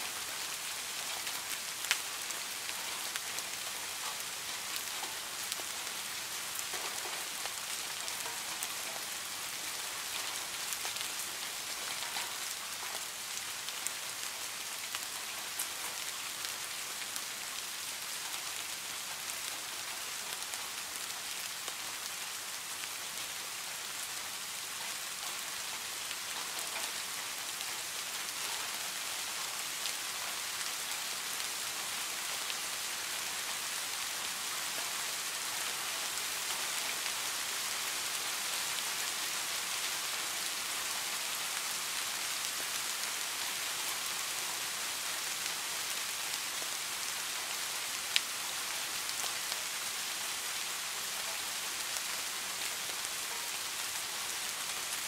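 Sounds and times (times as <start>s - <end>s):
steady rain hiss: 0.0s - 55.0s.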